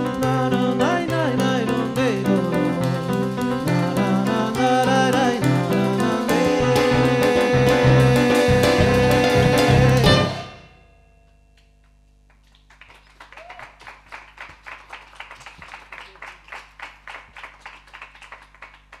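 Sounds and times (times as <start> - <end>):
acoustic band chord: 0.0 - 11.1
small audience clapping: 12.2 - 19.0.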